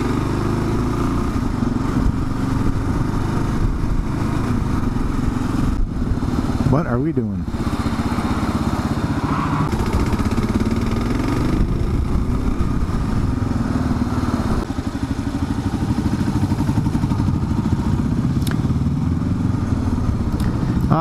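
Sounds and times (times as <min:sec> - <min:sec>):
motorcycle engine running: 0:00.0 - 0:21.0
wind noise: 0:01.2 - 0:06.7, 0:07.4 - 0:14.7.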